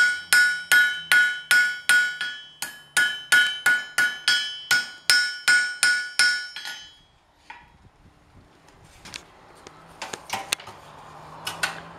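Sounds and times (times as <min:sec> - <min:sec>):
hammer striking iron on anvil: 0:00.0 - 0:07.7.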